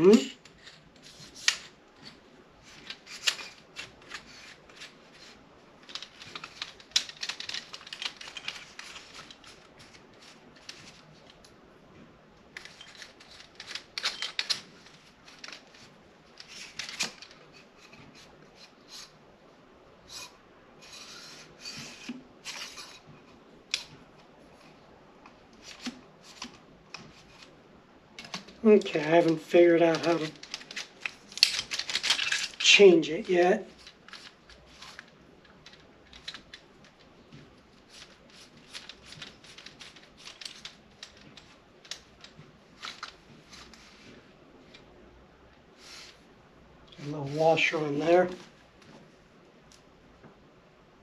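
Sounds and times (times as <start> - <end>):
tripod clicks and scrapes: 0.4 - 11.5.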